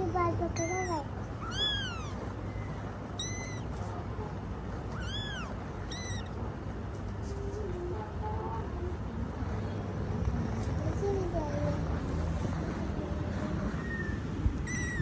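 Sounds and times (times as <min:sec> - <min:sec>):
kittens mewing: 0:00.4 - 0:06.5, 0:13.4 - 0:15.0.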